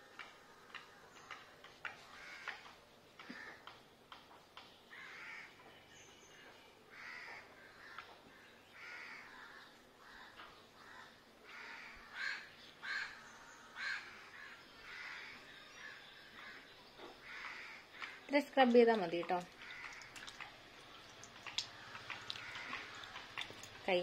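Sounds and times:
crow cawing: 2.1s - 3.7s, 4.9s - 5.6s, 6.9s - 13.2s, 13.8s - 18.3s, 19.5s - 20.4s, 21.8s - 23.5s.

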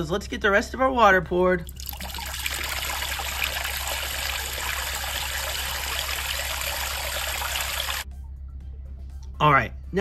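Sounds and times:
water pouring into container: 1.6s - 8.0s.

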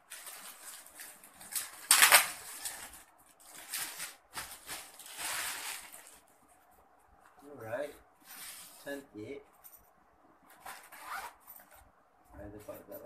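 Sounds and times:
plastic packaging crinkling: 0.0s - 6.3s.

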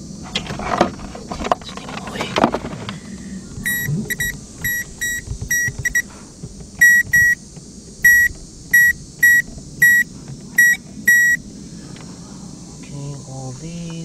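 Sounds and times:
circuit tester beeps: 3.6s - 6.1s, 6.8s - 7.4s, 8.0s - 11.4s.

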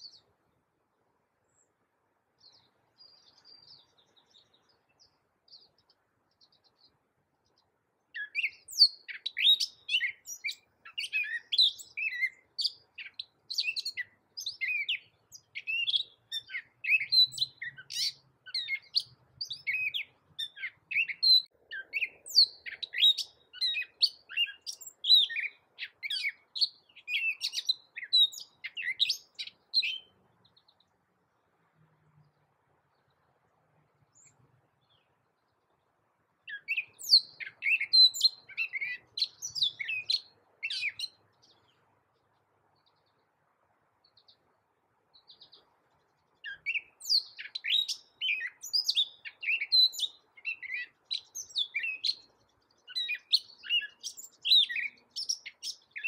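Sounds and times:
bird singing: 0.0s - 0.7s, 1.4s - 56.0s.

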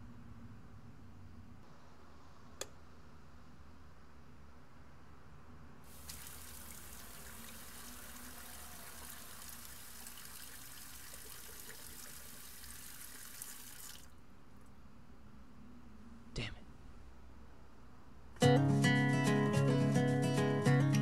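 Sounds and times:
faucet water running: 5.9s - 14.1s
person washing face: 5.9s - 14.1s.

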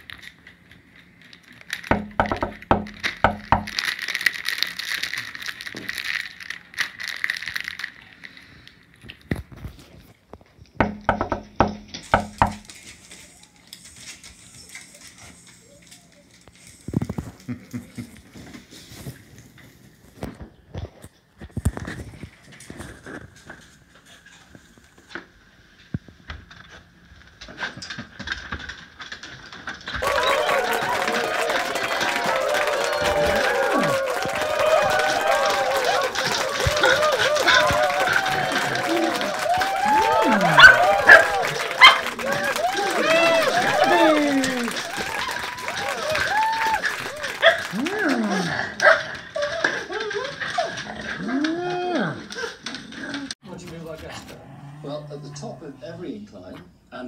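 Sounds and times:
dog claws tapping on wood floor: 1.8s - 4.0s
knock on door: 1.9s - 3.8s, 10.8s - 12.7s
dog yelping: 40.5s - 42.2s, 47.4s - 47.7s.

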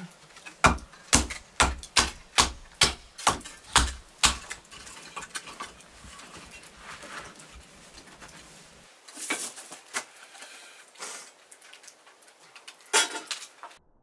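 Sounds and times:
knife striking dry wood: 0.6s - 4.6s.

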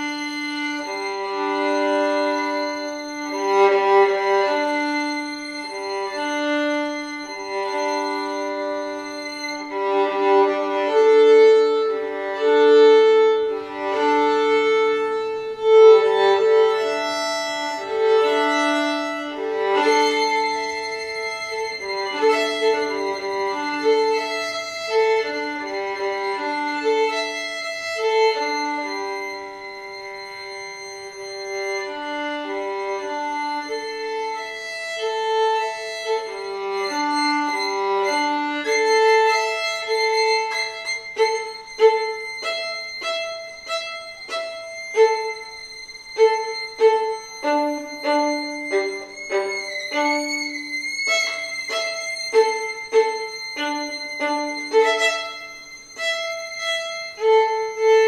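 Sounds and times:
two violins playing a duet: 0.0s - 58.0s.

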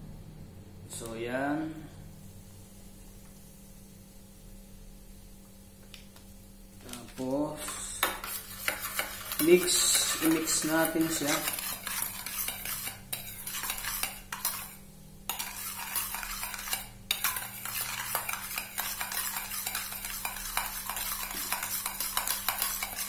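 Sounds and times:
metal spoon scraping a steel bowl: 7.1s - 23.0s.

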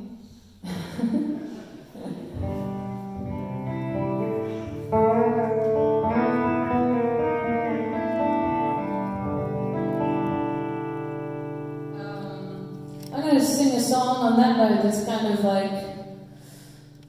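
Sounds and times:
electric guitar: 1.9s - 14.4s.

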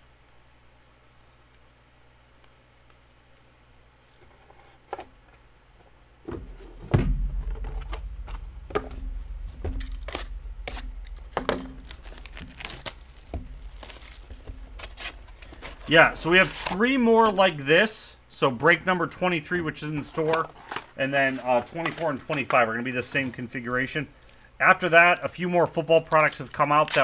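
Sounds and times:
handling thumps: 4.9s - 17.6s
wrapping tearing and crinkling: 9.4s - 17.6s, 20.1s - 22.3s, 25.0s - 27.0s.

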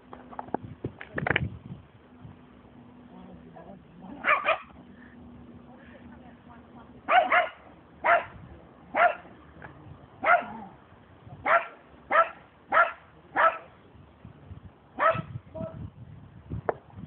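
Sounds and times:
small dog yapping: 4.2s - 4.8s, 10.2s - 10.7s, 15.0s - 15.3s.

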